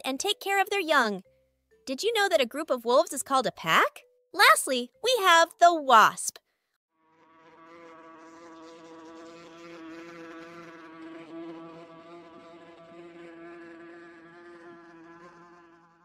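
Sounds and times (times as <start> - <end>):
wasp buzzing: 7.0 - 16.0.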